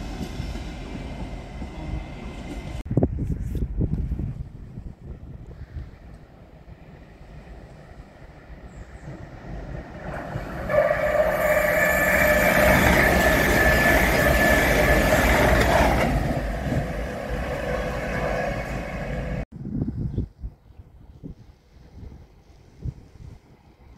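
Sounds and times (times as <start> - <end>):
electric train passing at speed: 0.0 - 2.9, 4.2 - 19.4.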